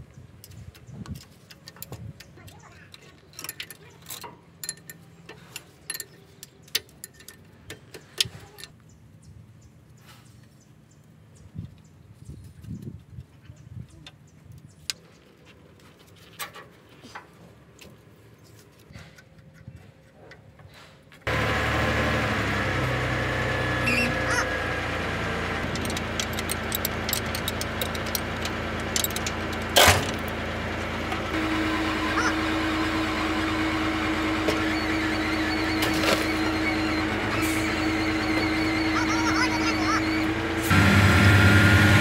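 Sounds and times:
engine running: 21.2 - 42.0.

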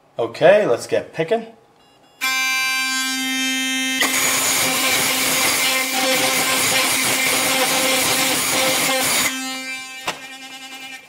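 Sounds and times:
electric toothbrush humming: 2.2 - 11.0.

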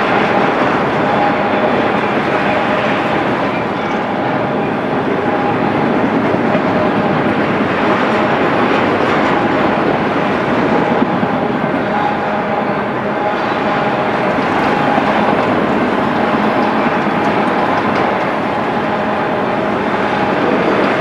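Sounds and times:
freight train wheels on rails: 0.0 - 21.0.

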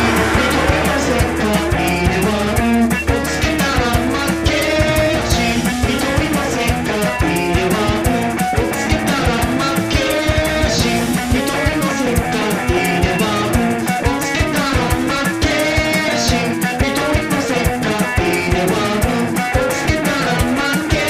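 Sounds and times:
rock band music: 0.0 - 21.0.

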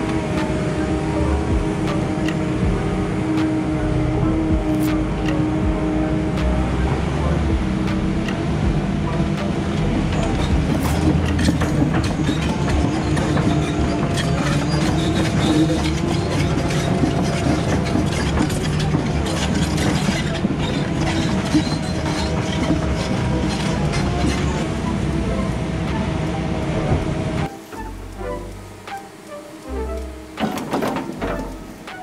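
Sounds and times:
diesel engine running: 0.0 - 31.9
track links clanking and rattling: 8.2 - 24.7, 29.9 - 32.0.

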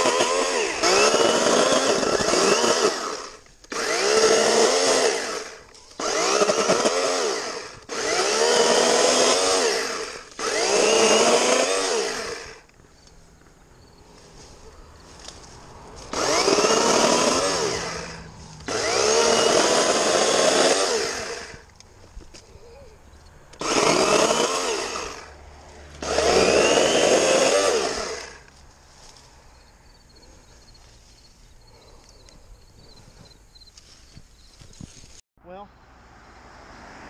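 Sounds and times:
electric chainsaw cutting limbs: 0.0 - 13.2, 15.0 - 22.4, 23.4 - 29.2.

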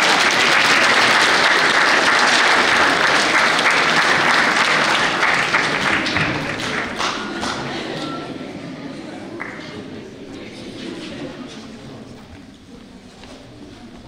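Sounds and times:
crowd clapping: 0.0 - 8.2, 9.4 - 9.8.

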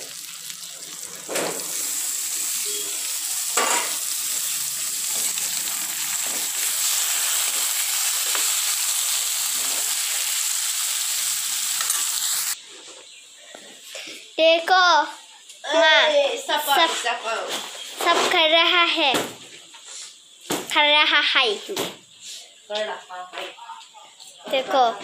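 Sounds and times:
food sizzling in hot oil: 0.0 - 13.4.

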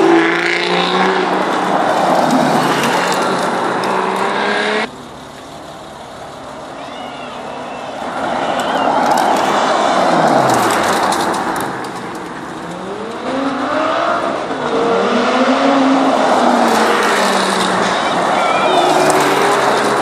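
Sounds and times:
sports car engine revving: 0.0 - 4.9.

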